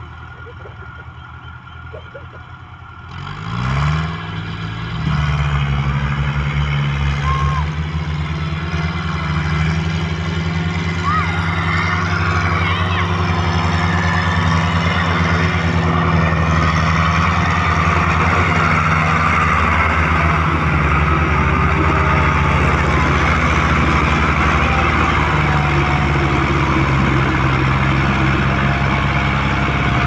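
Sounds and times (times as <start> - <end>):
tractor diesel engine under load: 0.0 - 30.0.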